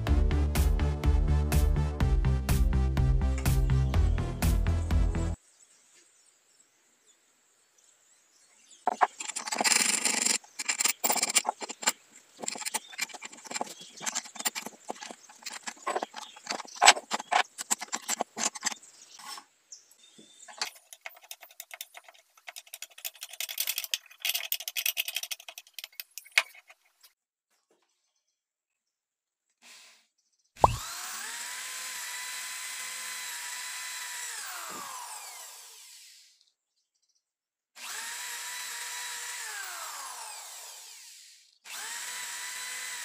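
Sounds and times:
wooden parts knocking and sliding: 0:08.8 - 0:19.5, 0:20.2 - 0:27.1
vise screw scraping rattle: 0:08.9 - 0:19.4, 0:20.5 - 0:27.0
wrench clinking on nut: 0:09.0 - 0:18.8, 0:20.5 - 0:26.7.

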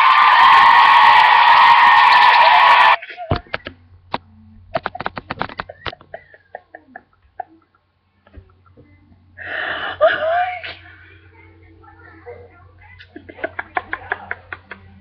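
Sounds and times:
woman's stifled laughter: 0:05.4 - 0:08.9.

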